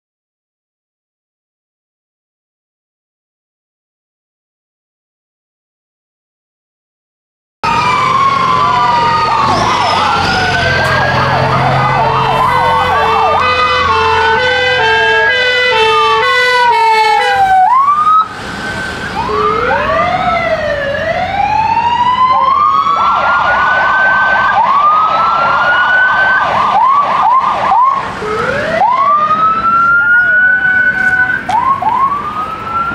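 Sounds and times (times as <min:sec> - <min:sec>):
fast yelp siren: 0:07.6 - 0:32.9
two-tone hi-lo siren: 0:07.6 - 0:32.9
wailing sirens: 0:07.6 - 0:32.9.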